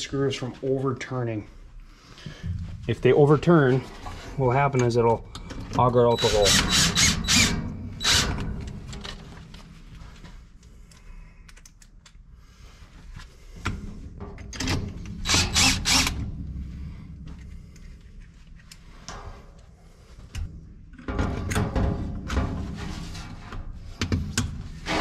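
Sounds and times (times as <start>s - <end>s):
drill driving screws into metal: 6.2s - 8.5s, 15.2s - 16.2s.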